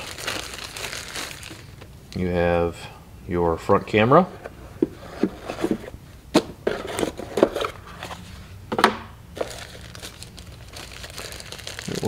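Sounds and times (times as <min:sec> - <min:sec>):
hands rummaging in cardboard box: 0:04.8 - 0:08.3, 0:09.4 - 0:12.0.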